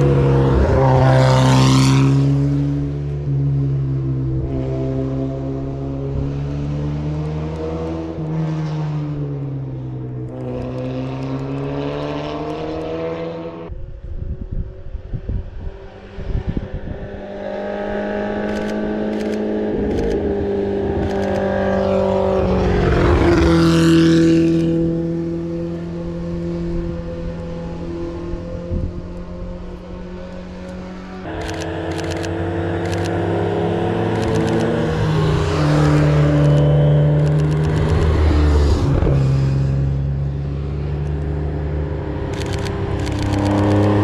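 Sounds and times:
rally car engines: 0:00.0 - 0:44.0
sharp clicks: 0:18.4 - 0:20.2, 0:21.0 - 0:21.5, 0:30.6 - 0:33.2, 0:34.0 - 0:38.2, 0:42.2 - 0:44.0.

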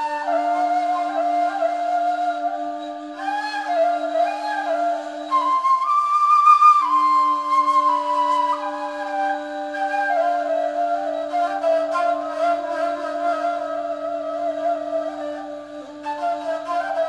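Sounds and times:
flute holding low note: 0:00.0 - 0:17.0
flute wandering melody: 0:00.0 - 0:17.0.

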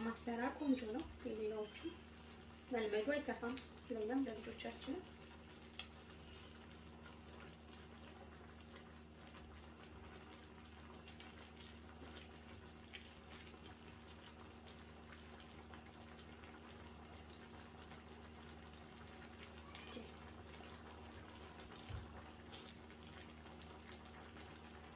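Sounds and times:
stew bubbling in a pan: 0:00.0 - 0:24.9
small pops and crackles: 0:03.3 - 0:03.9, 0:05.0 - 0:24.9.

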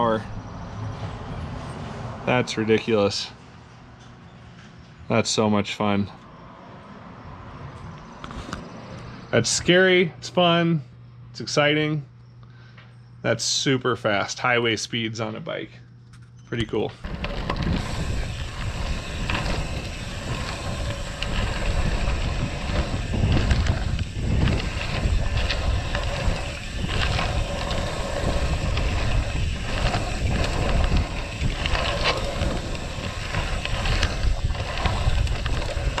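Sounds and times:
wind buffeting microphone: 0:17.0 - 0:36.0.

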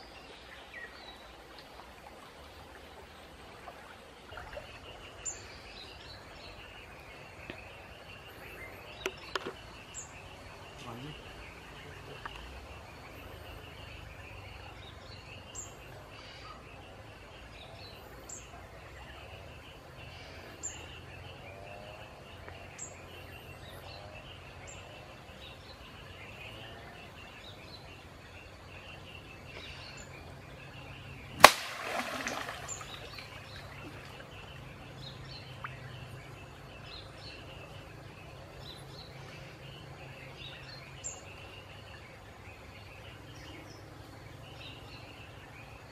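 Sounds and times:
stream: 0:00.0 - 0:45.9
birds chirping: 0:04.0 - 0:45.9
smack and splash on water: 0:31.4 - 0:34.2.

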